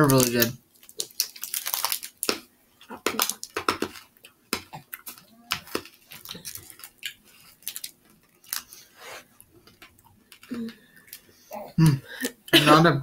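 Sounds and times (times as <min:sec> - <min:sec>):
candy wrappers rustling: 0:00.0 - 0:11.5
faint small vocal sounds: 0:10.5 - 0:12.3.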